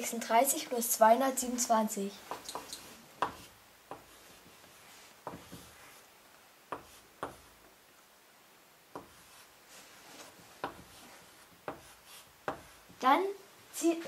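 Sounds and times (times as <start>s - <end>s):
chalk tapping on blackboard: 2.3s - 5.9s, 6.7s - 7.7s, 8.9s - 9.5s, 10.1s - 13.0s
chalk scratching: 2.3s - 6.1s, 6.7s - 7.6s, 9.0s - 13.0s.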